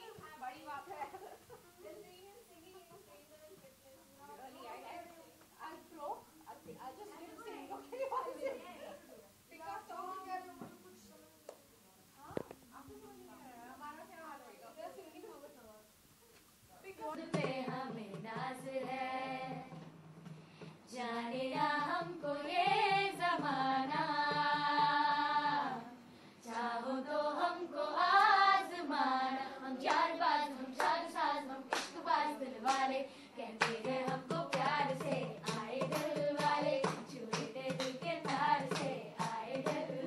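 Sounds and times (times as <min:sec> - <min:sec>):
children singing: 0:20.9 - 0:40.0
hand claps: 0:29.8 - 0:30.1, 0:30.8 - 0:31.0, 0:31.7 - 0:32.0, 0:32.6 - 0:32.9, 0:33.6 - 0:40.0.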